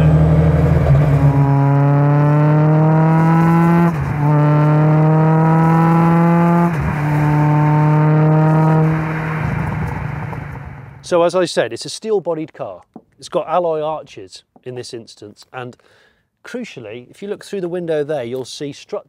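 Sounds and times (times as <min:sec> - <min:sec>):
car engine revving hard: 0:00.0 - 0:11.0.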